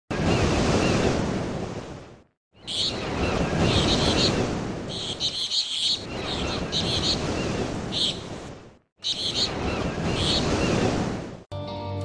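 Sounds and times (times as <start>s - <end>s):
birds chirping: 2.5s - 11.0s
surf: 2.6s - 11.4s.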